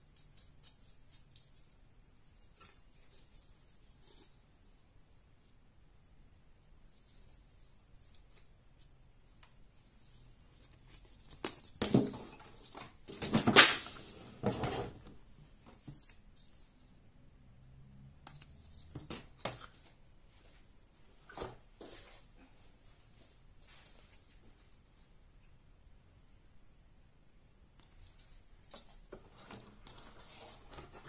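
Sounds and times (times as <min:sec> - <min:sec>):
rustles and knocks of handling: 0:06.9 - 0:17.0, 0:27.8 - 0:31.0.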